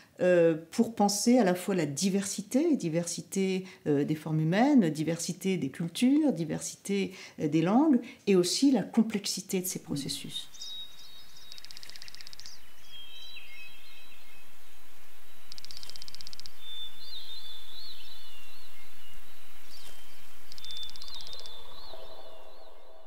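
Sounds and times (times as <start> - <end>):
background hiss: 0.0 - 23.0
birds chirping and singing: 9.8 - 23.0
low tones: 16.4 - 23.0.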